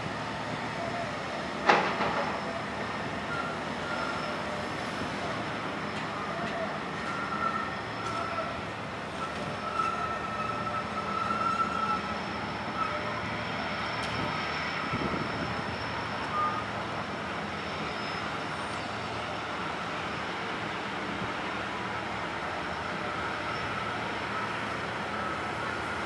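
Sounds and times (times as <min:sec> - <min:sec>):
ferry engines: 0:00.0 - 0:26.0
faint high squealing tones: 0:02.0 - 0:04.9, 0:05.9 - 0:19.3.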